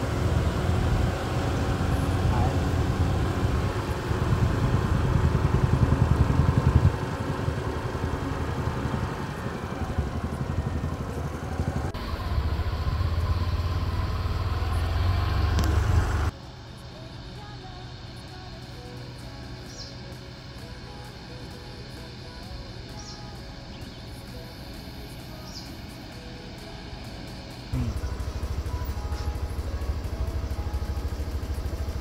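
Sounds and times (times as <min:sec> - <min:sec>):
motorcycle passing: 0:00.0 - 0:16.4, 0:27.5 - 0:32.0
combine harvester diesel engine: 0:00.0 - 0:32.0.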